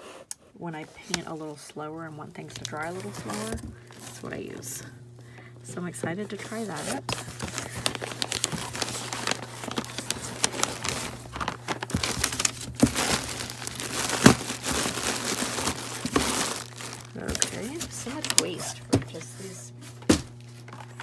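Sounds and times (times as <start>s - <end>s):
plastic packing crinkling: 2.3s - 4.9s, 5.8s - 21.0s
hands digging through cardboard box: 2.6s - 4.6s, 6.2s - 20.5s
paper rustling: 6.2s - 21.0s.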